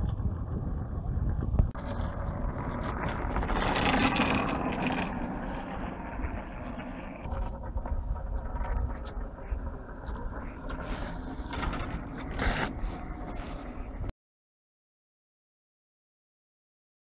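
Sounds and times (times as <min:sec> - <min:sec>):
wind rumble on microphone: 0:00.0 - 0:14.1
runners scraping on ice: 0:02.7 - 0:05.6, 0:10.7 - 0:14.0.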